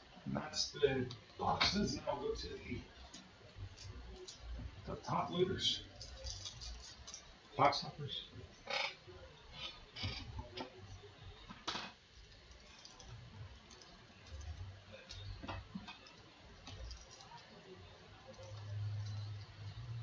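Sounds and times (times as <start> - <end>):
wrapper clicks and rustles: 6.0 - 7.3, 11.5 - 20.0.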